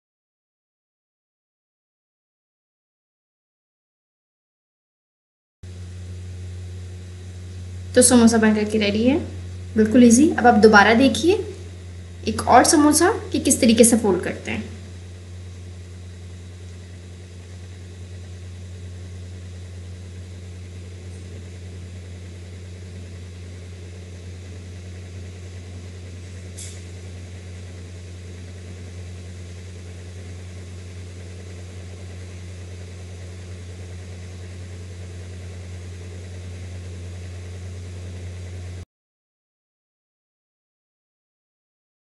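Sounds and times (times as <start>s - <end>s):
steady low motor hum: 5.6s - 38.9s.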